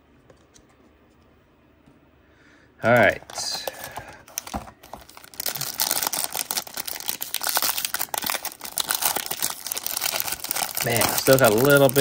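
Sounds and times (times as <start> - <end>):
foil wrapper crinkling: 3.0 - 12.0.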